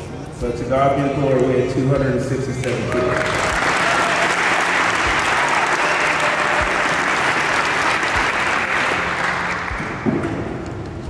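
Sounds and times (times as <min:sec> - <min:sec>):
audience applauding: 0:02.7 - 0:10.1.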